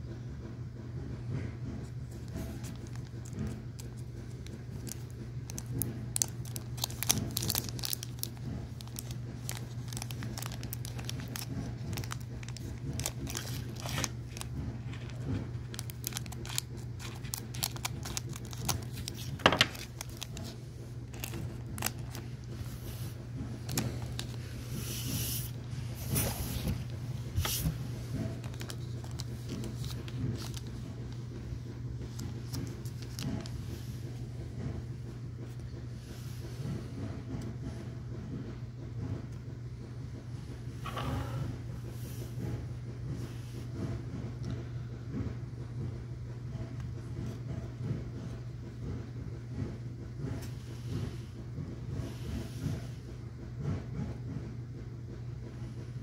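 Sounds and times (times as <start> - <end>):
steady low hum: 0.0 - 56.0
foil wrapper crinkling and tearing: 2.6 - 22.7, 28.4 - 30.8.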